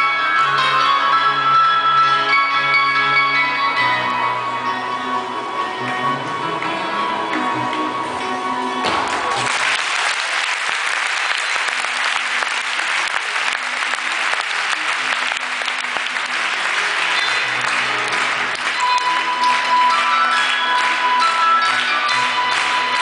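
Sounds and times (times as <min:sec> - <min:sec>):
live orchestra music: 0:00.0 - 0:09.5, 0:11.2 - 0:23.0
audience applauding: 0:08.8 - 0:23.0.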